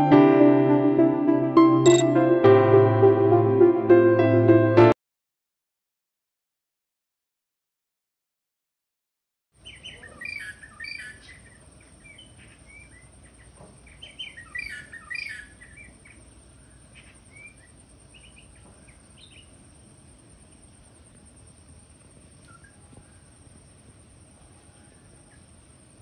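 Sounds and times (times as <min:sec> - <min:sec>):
bird chirps and whistles: 0:09.6 - 0:11.5, 0:14.0 - 0:15.9.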